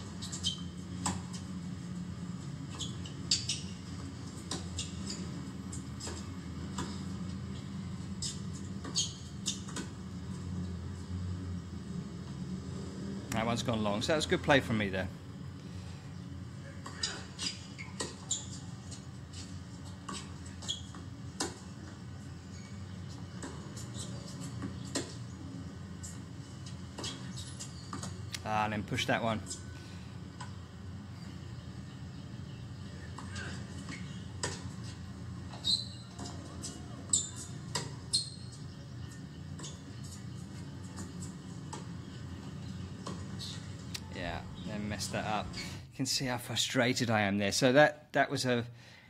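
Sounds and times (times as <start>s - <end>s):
steady low hum: 0.0s - 49.0s
tennis ball hit and bouncing: 33.2s - 34.8s, 36.2s - 38.1s.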